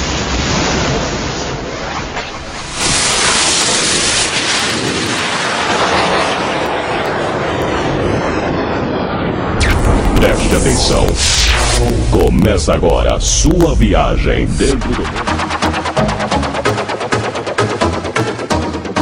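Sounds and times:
loud rushing noise: 0:09.3 - 0:18.9.

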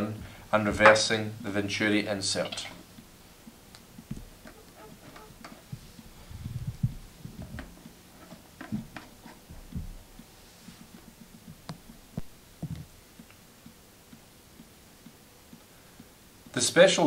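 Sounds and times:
light clicks and knocks: 0:02.4 - 0:15.7.

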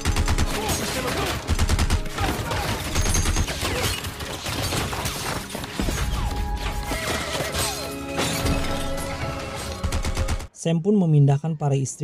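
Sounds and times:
gatling gun firing rapidly: 0:00.0 - 0:05.9
background music: 0:00.0 - 0:12.0.

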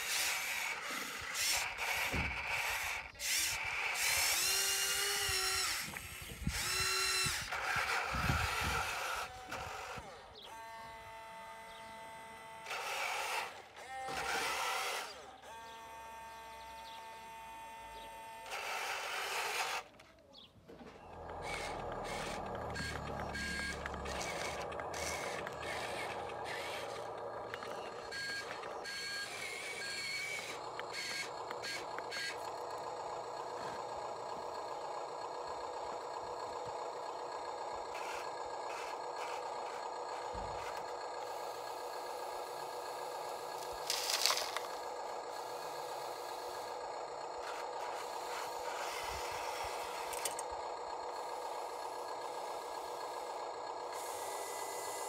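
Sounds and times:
electronic hum of sound units: 0:00.0 - 0:55.0
reversing beeper beeps: 0:21.1 - 0:25.8, 0:27.5 - 0:32.4.

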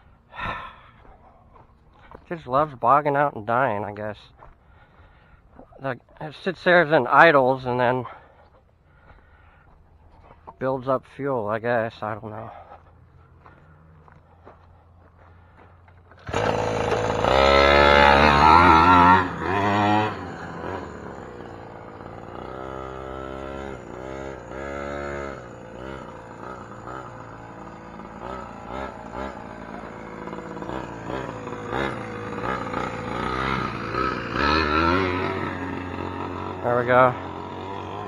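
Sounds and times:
small two-stroke engine revving: 0:16.0 - 0:38.0.

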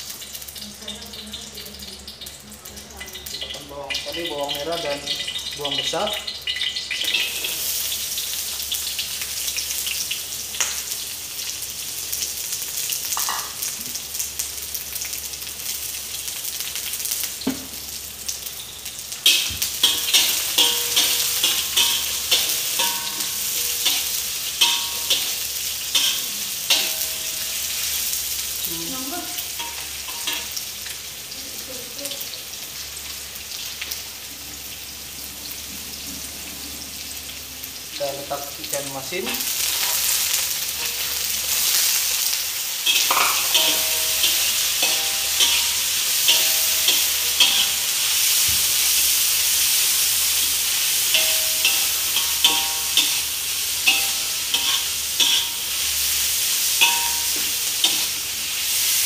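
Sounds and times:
onions sizzling in hot oil: 0:00.0 - 0:59.0
spatula scraping and knocking wok: 0:07.0 - 0:08.2, 0:19.2 - 0:28.4, 0:39.3 - 0:59.0.

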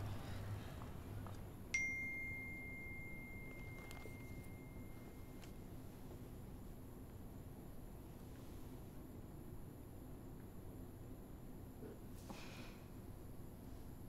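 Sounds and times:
phone notification ding: 0:01.8 - 0:05.5.

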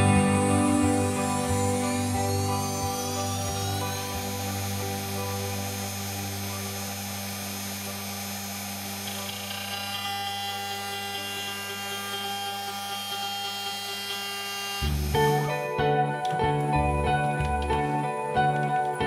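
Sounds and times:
guitar music: 0:00.0 - 0:08.0, 0:14.8 - 0:19.0
router spindle whine: 0:00.0 - 0:19.0
soft background music: 0:00.0 - 0:19.0.

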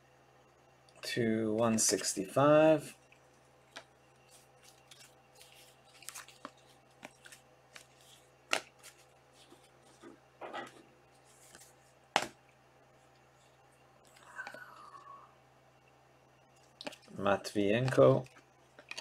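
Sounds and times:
cards clicking and rustling: 0:03.7 - 0:10.8, 0:17.8 - 0:19.0.

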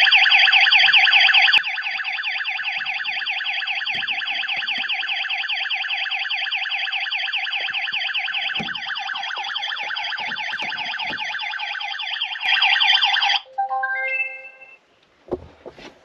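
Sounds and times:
warbling alarm siren: 0:00.0 - 0:14.4
rising beeps: 0:12.5 - 0:14.8.

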